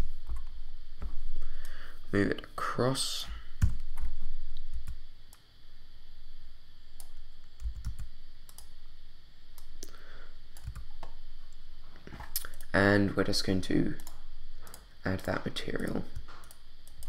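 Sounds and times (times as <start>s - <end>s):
faint steady hiss: 0.0s - 17.0s
keyboard and mouse clicks: 14.0s - 17.0s.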